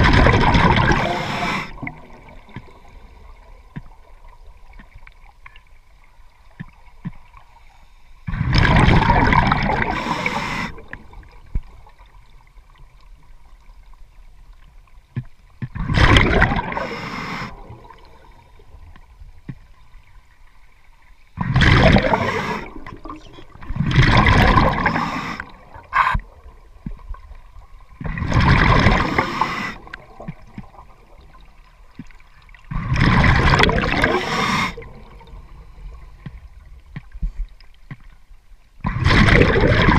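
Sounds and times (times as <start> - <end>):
underwater breath bubbles: 0.0 - 3.7, 8.2 - 11.4, 15.8 - 18.9, 21.4 - 27.1, 28.0 - 31.5, 32.6 - 36.6, 38.8 - 39.9.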